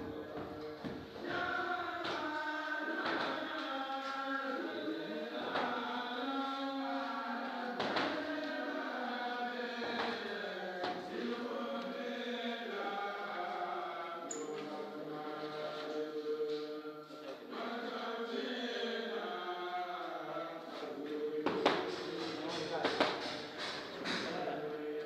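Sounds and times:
voices singing in a chant: 0.0 - 25.0
sharp knocking beat: 21.5 - 24.4.

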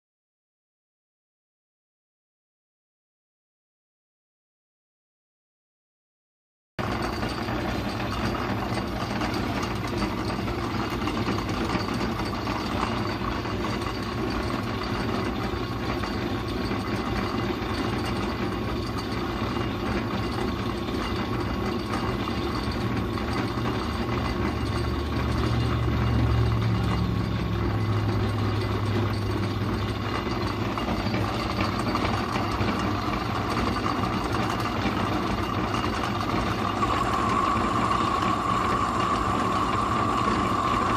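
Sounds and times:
metal lathe running: 6.8 - 40.9
low hum: 36.2 - 40.9.

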